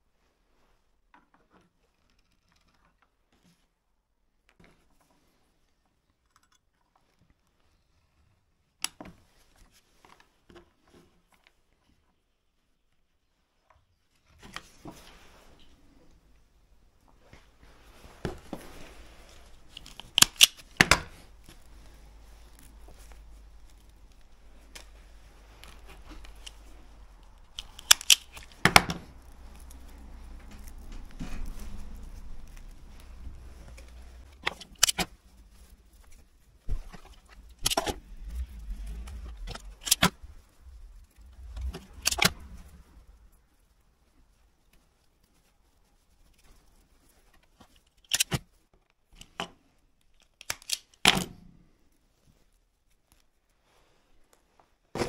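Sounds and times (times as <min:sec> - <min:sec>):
wire stripper snapping cable: 0:19.7 - 0:21.1, 0:27.4 - 0:31.8, 0:36.9 - 0:40.3, 0:41.0 - 0:42.8.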